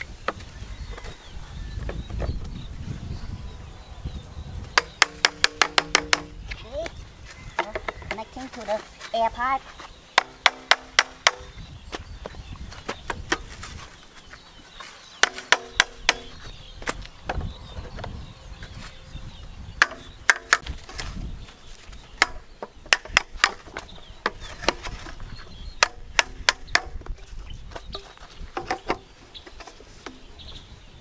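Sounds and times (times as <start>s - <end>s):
hammer knocking plastic pipes: 4.8s - 6.4s, 10.2s - 11.5s, 15.2s - 16.4s, 19.8s - 20.7s, 25.8s - 27.1s.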